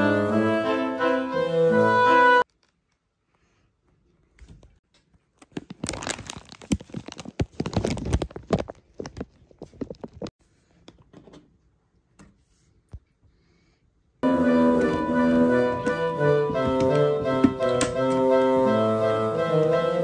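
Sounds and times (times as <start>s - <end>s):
plastic container crinkling: 5.4s - 10.3s.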